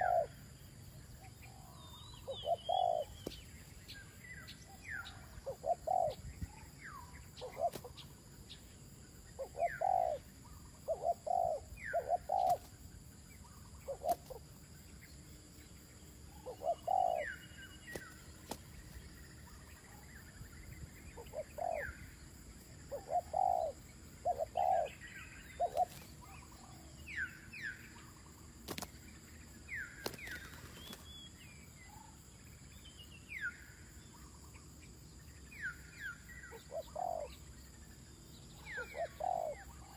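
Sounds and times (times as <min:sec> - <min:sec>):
doves cooing: 0:00.0 - 0:00.4, 0:01.5 - 0:03.4, 0:05.1 - 0:06.2, 0:07.4 - 0:08.1, 0:09.4 - 0:12.8, 0:13.5 - 0:14.5, 0:16.3 - 0:18.1, 0:21.2 - 0:22.1, 0:22.8 - 0:27.0, 0:36.5 - 0:37.4, 0:38.6 - 0:39.9
small bird chirps: 0:01.2 - 0:14.9, 0:22.8 - 0:32.2, 0:32.8 - 0:39.9.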